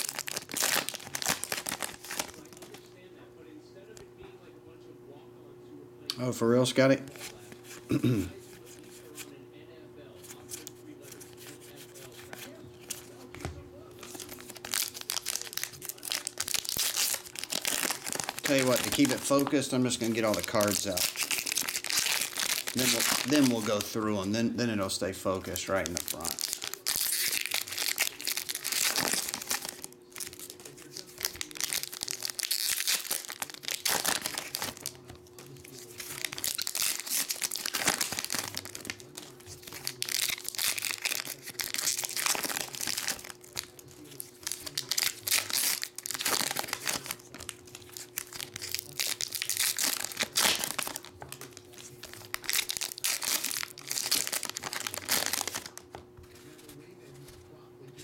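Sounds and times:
foil wrappers tearing and crinkling: 0:00.0 - 0:02.9, 0:14.0 - 0:24.4, 0:25.3 - 0:56.0
faint hum: 0:00.0 - 0:58.0.

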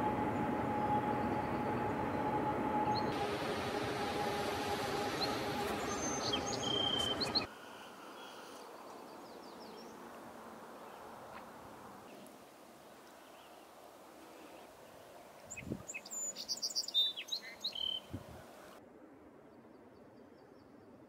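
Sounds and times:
freight train rolling past: 0:00.0 - 0:07.5
held whine: 0:00.0 - 0:07.5
birds chirping: 0:00.2 - 0:10.0, 0:15.5 - 0:18.7.

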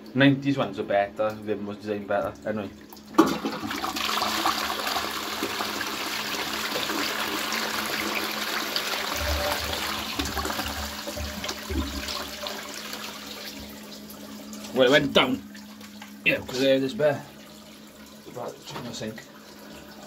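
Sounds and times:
toilet flushing: 0:00.6 - 0:20.0
low gulps from toilet trap: 0:09.0 - 0:12.4.

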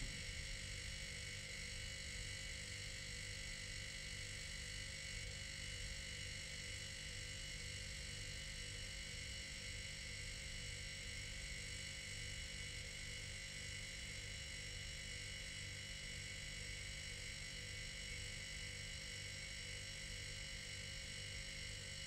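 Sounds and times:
refrigerator compressor humming: 0:00.0 - 0:00.6.

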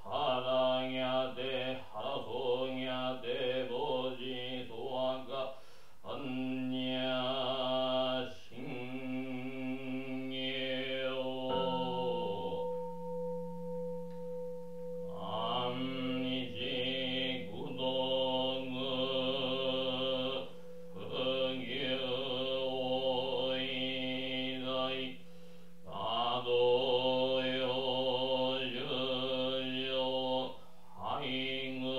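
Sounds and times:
man chanting: 0:00.0 - 0:12.7, 0:15.2 - 0:25.2, 0:25.9 - 0:31.9
bowl bell ringing: 0:11.4 - 0:30.2.

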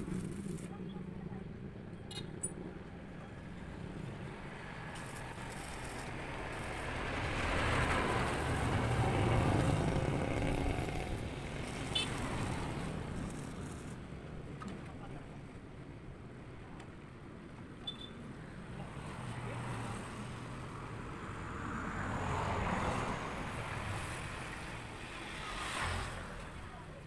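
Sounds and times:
vehicle passing: 0:04.4 - 0:13.8.

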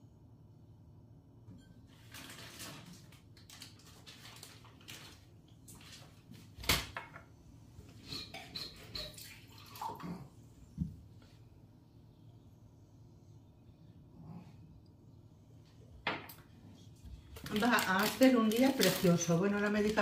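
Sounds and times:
rustles and clinks of items: 0:17.3 - 0:20.0.

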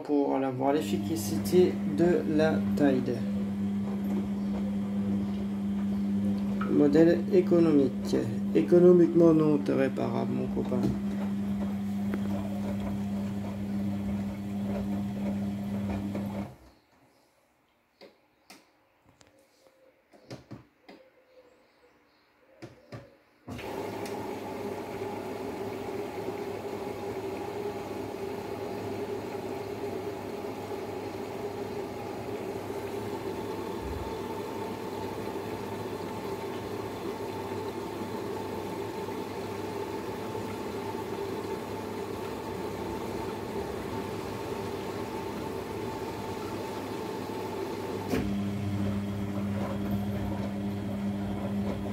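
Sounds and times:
water rushing into washing machine: 0:00.4 - 0:16.6, 0:23.5 - 0:51.9.

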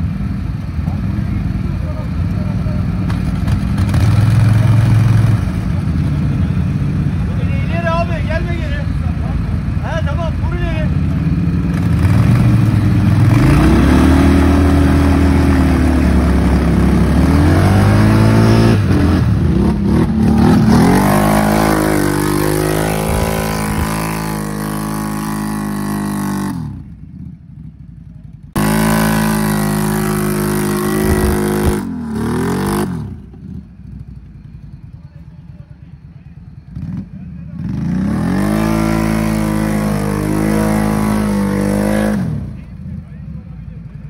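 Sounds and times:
atv engine revving: 0:00.0 - 0:44.0.

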